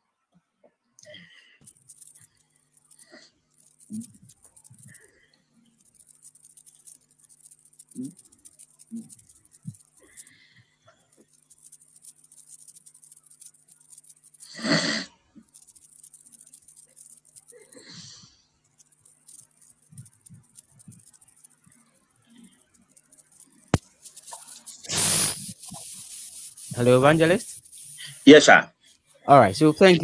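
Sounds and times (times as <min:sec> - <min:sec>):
rustles: 0:01.6 - 0:14.7, 0:15.4 - 0:28.3
call line hum with crackling hiss: 0:18.9 - 0:28.6.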